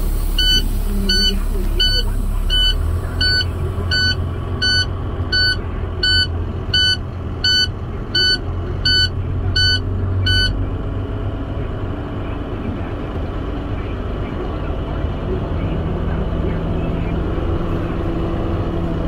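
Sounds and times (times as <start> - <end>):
diesel engine low rumble: 0.0 - 19.0
reversing alarm beeping: 0.3 - 10.6.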